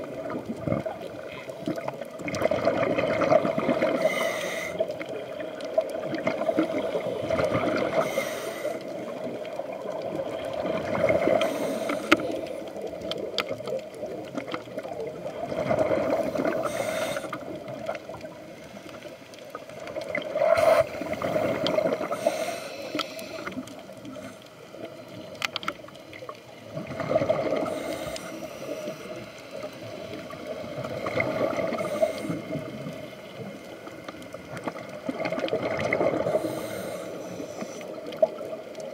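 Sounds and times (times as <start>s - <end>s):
gurgling exhaled bubbles underwater: 0.0s - 38.9s
diver breathing through regulator: 3.8s - 5.0s, 6.6s - 9.2s, 11.2s - 12.8s, 16.1s - 17.5s, 20.4s - 24.6s, 27.5s - 29.9s, 31.6s - 32.6s, 36.2s - 38.0s.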